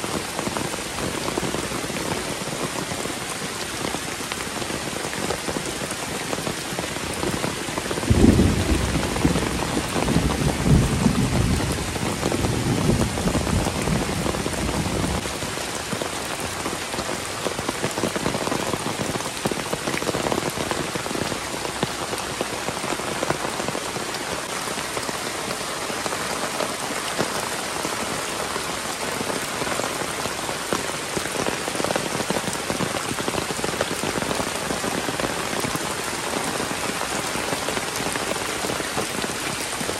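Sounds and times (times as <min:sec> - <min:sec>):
heavy rain pouring: 0:00.0 - 0:39.9
thunder rumbling: 0:08.0 - 0:15.3.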